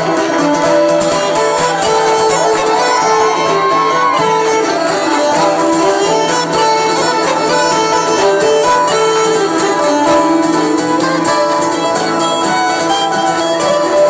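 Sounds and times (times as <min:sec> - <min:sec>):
bagpipes melody: 0:00.0 - 0:14.0
fiddle: 0:00.0 - 0:14.0
plucked strings: 0:00.0 - 0:14.0
pipe drone: 0:04.5 - 0:13.9.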